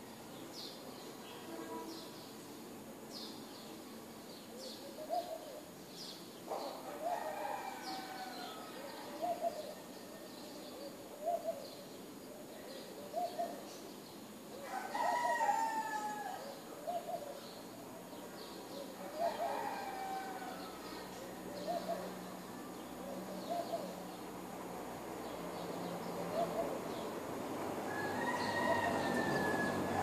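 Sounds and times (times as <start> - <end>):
rooster crowing: 6.9 - 9.4, 14.6 - 16.6, 19.0 - 20.9, 27.8 - 30.0.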